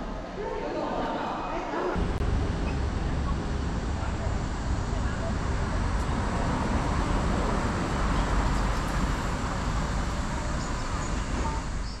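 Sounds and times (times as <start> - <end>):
road traffic rumble: 2.0 - 12.0.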